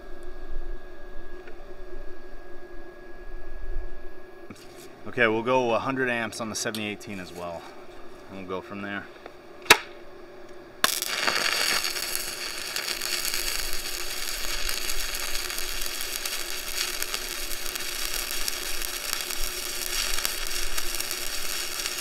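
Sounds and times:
welding arc crackling: 0:10.8 - 0:22.0.

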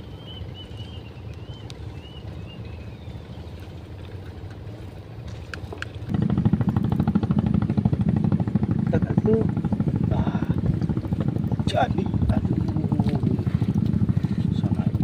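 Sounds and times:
engine chugging: 0:06.0 - 0:15.0.

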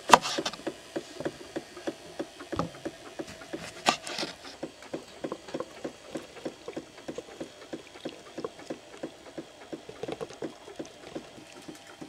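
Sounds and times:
lemon grinding on citrus juicer: 0:00.0 - 0:12.0.

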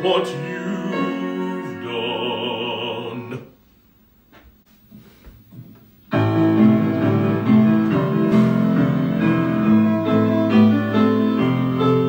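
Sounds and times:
piano chords: 0:00.0 - 0:03.4, 0:06.1 - 0:12.0
person singing: 0:00.0 - 0:03.5.

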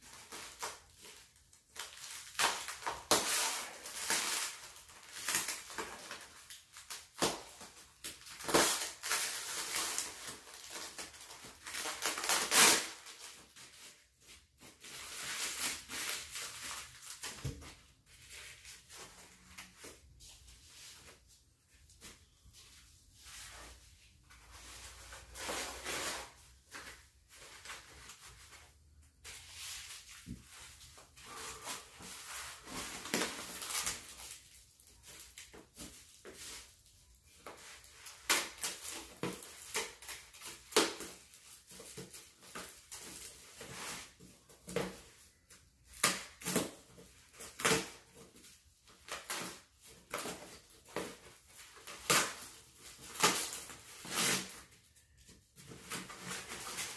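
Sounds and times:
packing wrap crinkling: 0:00.0 - 0:20.0, 0:24.3 - 0:56.9
knife cutting packaging: 0:08.2 - 0:13.4, 0:49.1 - 0:54.7.

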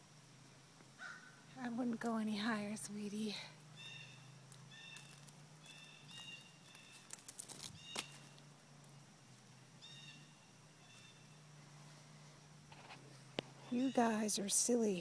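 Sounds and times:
steady low hum: 0:00.0 - 0:15.0
bird chirps: 0:03.7 - 0:08.4, 0:09.8 - 0:11.5, 0:13.6 - 0:14.4.

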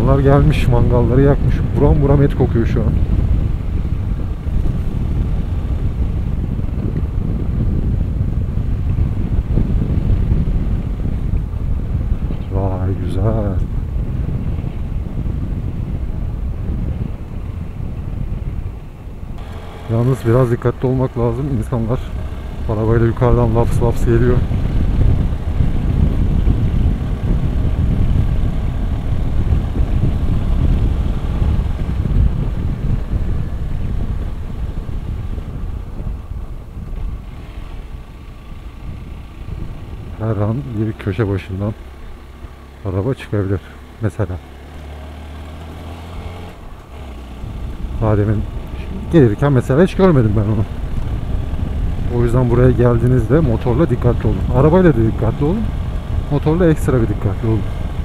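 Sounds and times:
motorcycle engine running: 0:00.0 - 0:58.0
wind buffeting microphone: 0:00.0 - 0:58.0.

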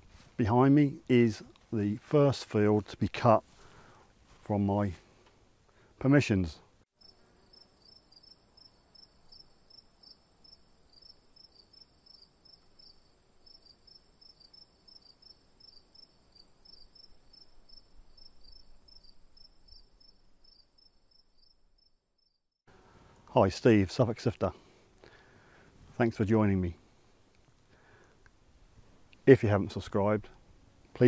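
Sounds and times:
insects chirping: 0:07.0 - 0:23.2.

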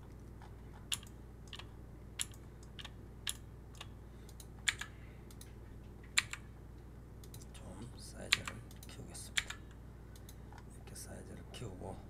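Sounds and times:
keyboard and mouse clicks: 0:00.0 - 0:06.5, 0:07.2 - 0:07.5, 0:08.3 - 0:09.6
faint low hum: 0:00.0 - 0:12.0.

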